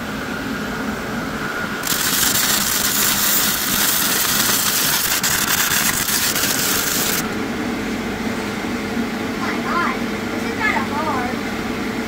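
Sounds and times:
welding arc hissing and crackling: 0:01.8 - 0:07.3.

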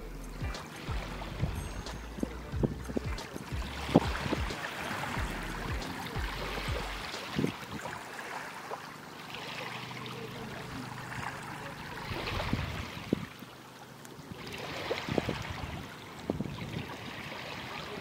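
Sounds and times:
small waves lapping on beach: 0:00.0 - 0:18.0
wind bumps on microphone: 0:00.4 - 0:08.0, 0:12.1 - 0:13.4, 0:14.8 - 0:17.2.

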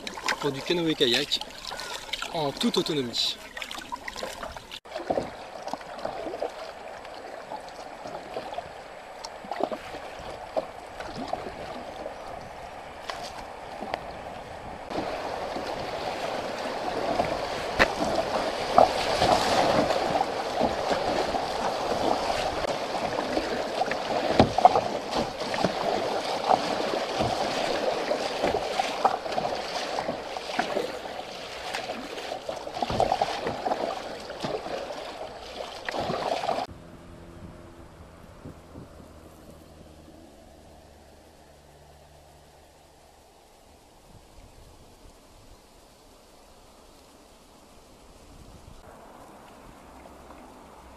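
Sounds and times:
water slapping kayak hull: 0:00.0 - 0:36.8
river water rushing: 0:00.0 - 0:44.0, 0:48.8 - 0:50.9.

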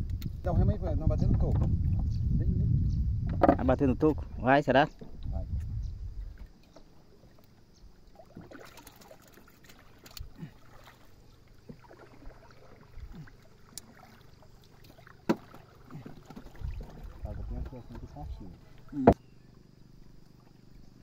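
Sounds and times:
paddle knocking on wooden hull: 0:01.3 - 0:02.1, 0:03.2 - 0:03.8, 0:15.0 - 0:19.2
paddle swishing in water: 0:06.2 - 0:19.2.

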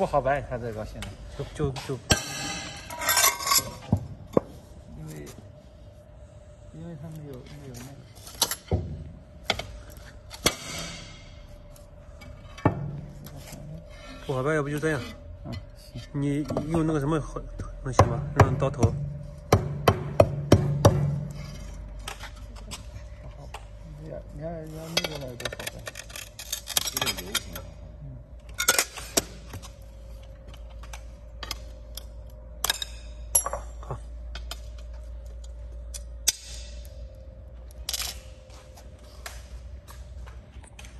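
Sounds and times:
faint steady hum: 0:00.0 - 0:40.9.

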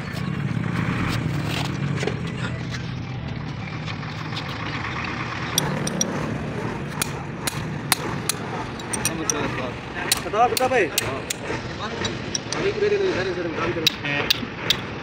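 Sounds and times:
hammer striking metal: 0:07.0 - 0:09.5, 0:10.1 - 0:12.6, 0:13.8 - 0:14.9.

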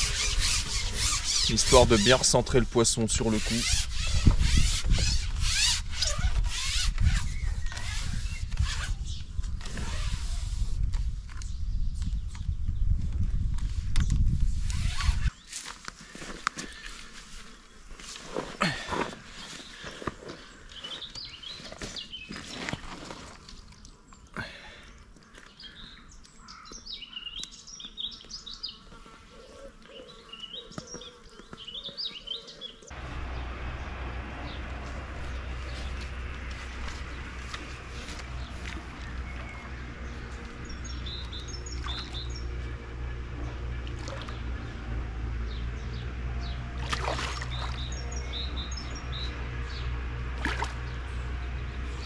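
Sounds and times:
fishing pole scraping: 0:00.0 - 0:10.8, 0:14.6 - 0:15.4.

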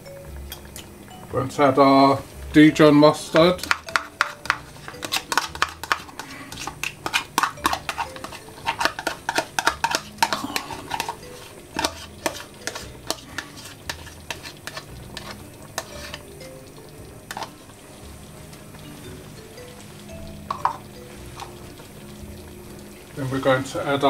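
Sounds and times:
metal spoon scraping plastic cup: 0:03.6 - 0:16.3.

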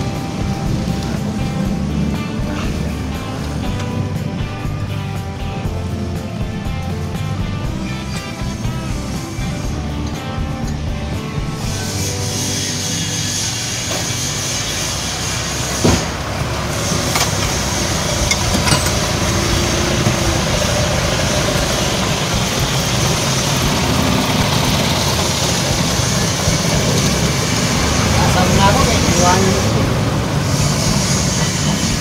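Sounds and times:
machinery noise: 0:00.0 - 0:32.0
metallic clink: 0:16.9 - 0:19.4.

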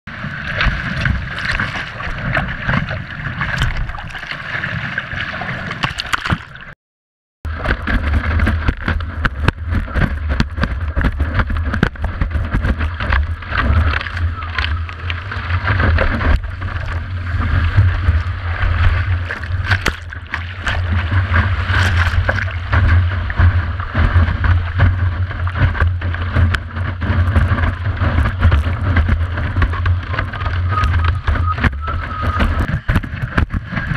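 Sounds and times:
board slapping on water: 0:00.1 - 0:06.8, 0:07.5 - 0:33.9
rush of water along board: 0:00.1 - 0:06.8, 0:07.5 - 0:33.9
low rumble: 0:07.5 - 0:33.9.

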